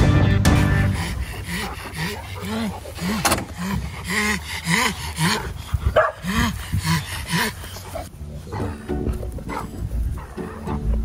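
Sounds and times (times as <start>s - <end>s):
dog barking: 6.0s - 6.3s.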